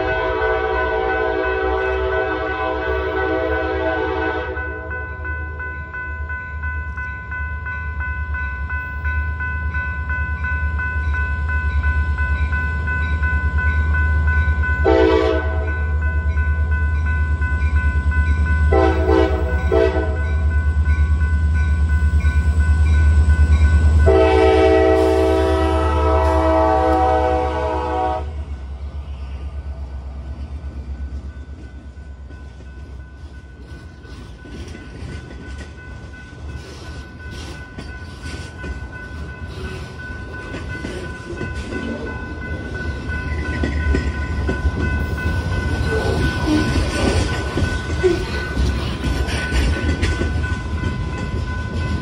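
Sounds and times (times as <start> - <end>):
train air horn blasts: 0.0 - 4.9, 14.8 - 15.8, 18.7 - 20.2, 24.0 - 28.5
train wheels clicking on rails: 27.9 - 52.0.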